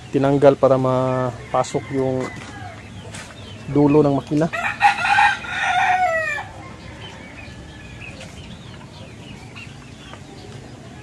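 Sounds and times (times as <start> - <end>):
rooster crowing: 1.2 - 2.8, 4.5 - 8.2.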